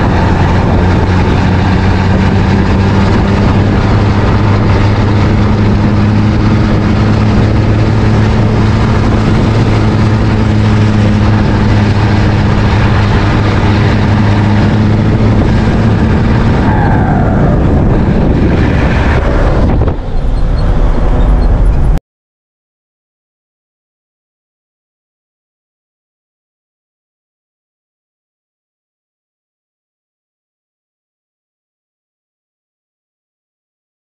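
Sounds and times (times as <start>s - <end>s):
diesel truck engine running: 0.0s - 22.0s
low engine rumble: 0.0s - 22.0s.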